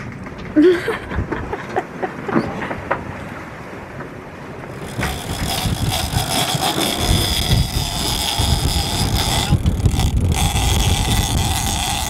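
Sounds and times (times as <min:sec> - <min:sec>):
wind buffeting microphone: 0:02.4 - 0:12.0.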